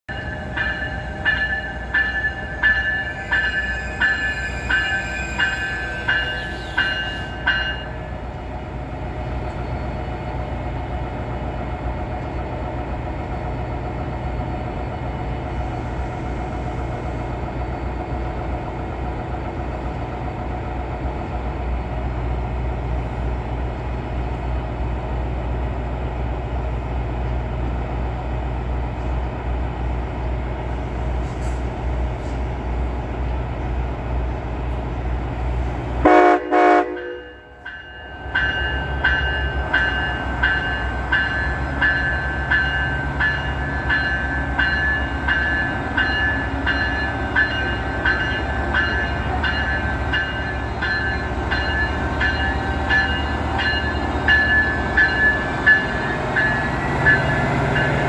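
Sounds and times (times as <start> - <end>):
locomotive bell ringing: 0.1 - 8.3, 36.1 - 58.0.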